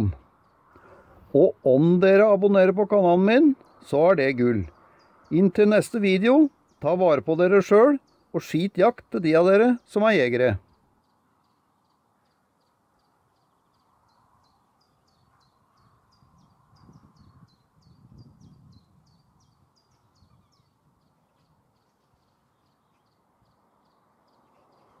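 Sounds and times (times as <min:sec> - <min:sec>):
small bird chirping: 0:06.4 - 0:25.0.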